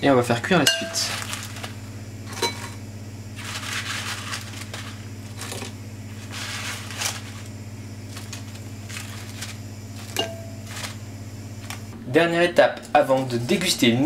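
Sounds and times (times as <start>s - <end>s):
low hum: 0.0s - 12.1s
churros rustling together: 3.3s - 11.9s.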